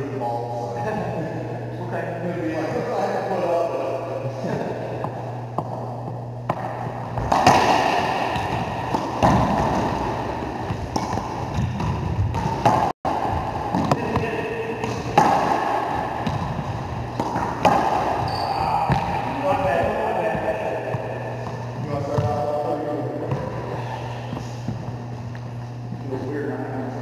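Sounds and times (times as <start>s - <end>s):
ball cracking off racquets and walls: 6.4s - 19.2s.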